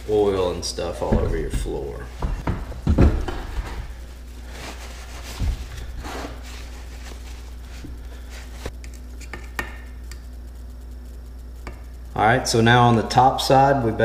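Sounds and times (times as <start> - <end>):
towel rustling: 0.0 - 8.7
steady low hum: 0.0 - 14.0.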